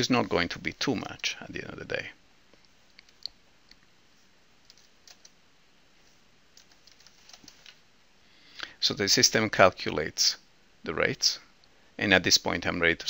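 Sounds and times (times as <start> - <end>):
computer keyboard typing: 4.6 - 5.4, 6.6 - 7.8.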